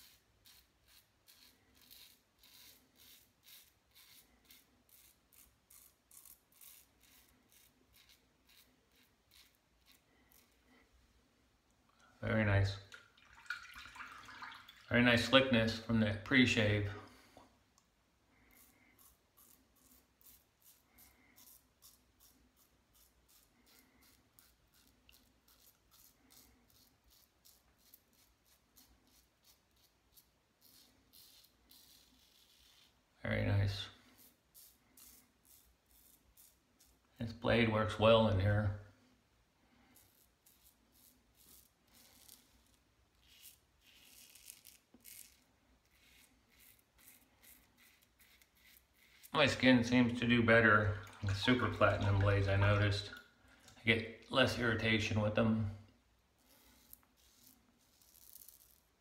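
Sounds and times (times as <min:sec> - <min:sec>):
faint razor rasping on stubble: 0:00.0 - 0:10.7, 0:18.4 - 0:33.0, 0:34.0 - 0:37.0, 0:39.9 - 0:50.4, 0:56.4 - 0:58.9.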